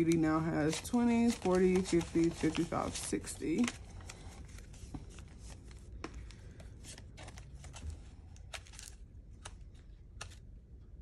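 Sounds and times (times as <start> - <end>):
paper banknotes rustling: 0.0 - 10.4.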